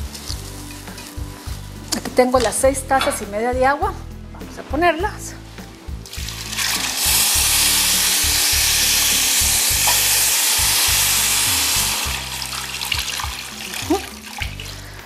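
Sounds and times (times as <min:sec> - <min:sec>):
hissing and sizzling: 0:05.5 - 0:15.0
water pouring into hot pot: 0:06.2 - 0:14.7.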